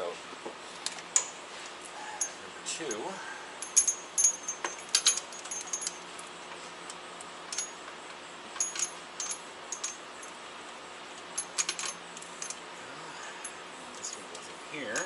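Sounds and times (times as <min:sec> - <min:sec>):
faint steady hum: 0:00.0 - 0:15.0
metal fittings and tools clinking: 0:03.6 - 0:06.0, 0:08.6 - 0:10.3, 0:11.4 - 0:12.6, 0:14.0 - 0:15.0.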